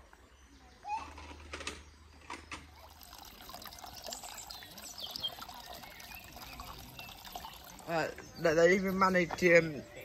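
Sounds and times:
water drips and splashes: 2.6s - 8.9s
water trickling: 2.6s - 9.3s.

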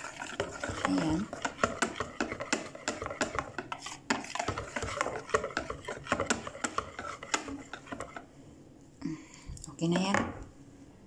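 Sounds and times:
whisk beating batter in bowl: 0.0s - 8.4s.

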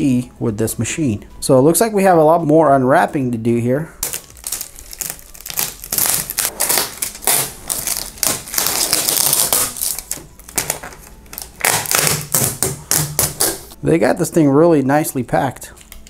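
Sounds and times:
plastic film crinkling: 4.0s - 13.7s
tape peeling off plastic: 4.0s - 13.8s.

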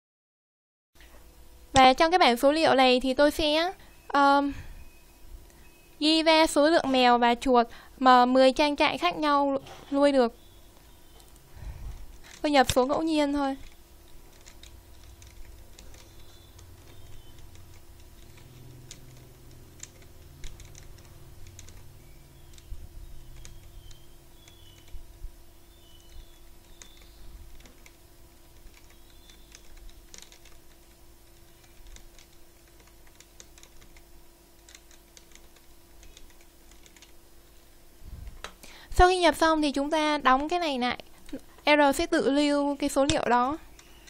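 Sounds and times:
faint keyboard keystrokes: 13.6s - 25.0s, 26.0s - 34.0s, 34.6s - 37.2s.

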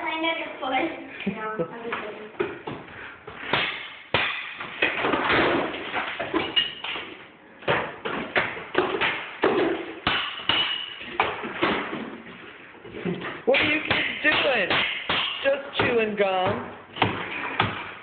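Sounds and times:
hammers striking plaster wall: 13.5s - 18.0s.

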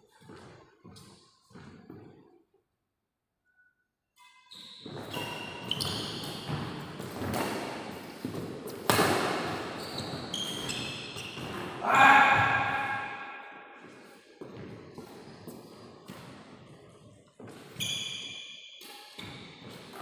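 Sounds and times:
rackets hitting shuttlecock: 4.9s - 9.8s.

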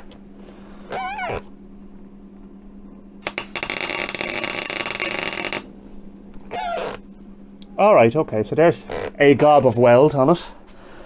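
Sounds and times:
welding arc crackling: 3.2s - 5.7s.

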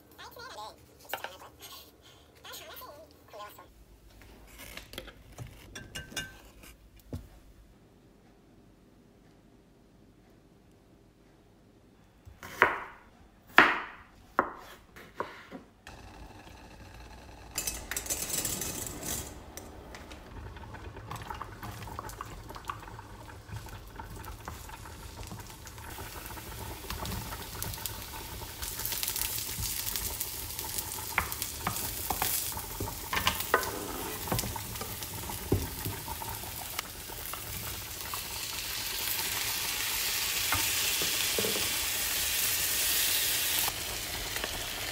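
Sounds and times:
knife chopping on wooden board: 12.4s - 15.6s
food sizzling in a wok: 21.9s - 44.9s.

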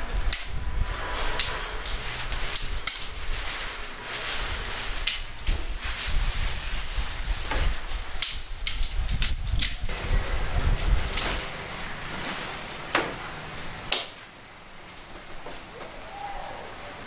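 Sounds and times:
low rumble: 0.0s - 12.2s
tent pole sections clicking: 0.2s - 6.2s, 7.5s - 9.9s.

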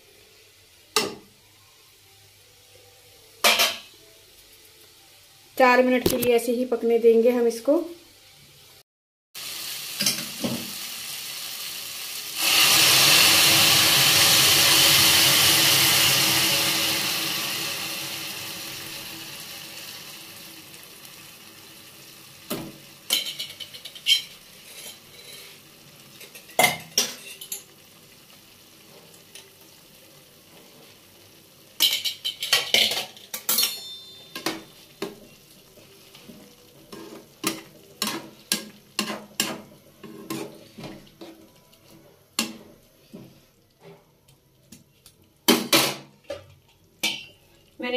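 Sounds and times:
food sizzling in a pan: 0.0s - 8.8s, 9.4s - 47.9s
loud hiss of water in hot pan: 9.4s - 32.2s
steel ladle scraping a pan: 23.1s - 27.7s, 36.3s - 41.5s.

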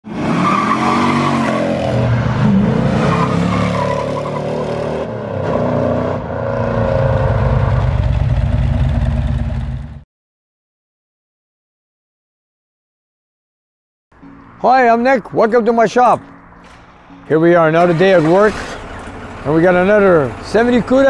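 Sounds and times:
car engine revving: 0.0s - 10.0s, 16.2s - 21.0s
tire squeal: 0.1s - 7.9s, 16.6s - 21.0s.

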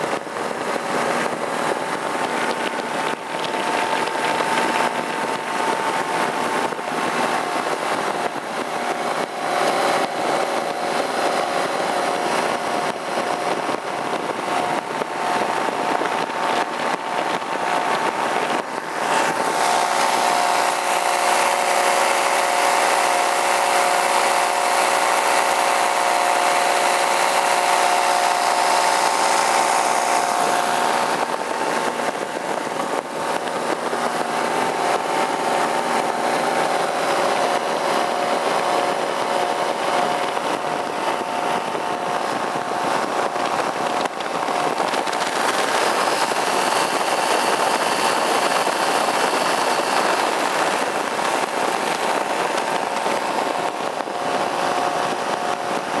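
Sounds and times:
paramotor engine running: 0.0s - 56.0s
air rushing: 26.8s - 56.0s.

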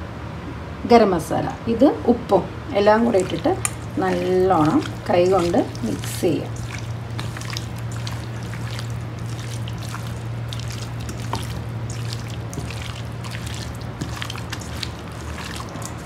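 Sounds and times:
steady low hum: 0.0s - 16.0s
hands squishing raw chicken: 2.9s - 16.0s.

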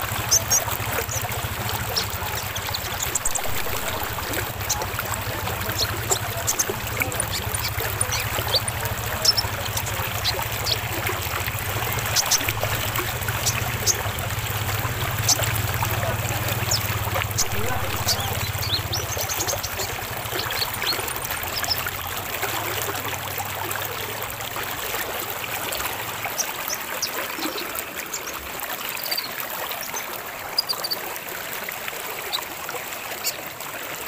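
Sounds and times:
water trickling: 0.0s - 34.0s
bird chirping: 0.3s - 11.1s, 11.8s - 14.2s, 15.1s - 21.9s.

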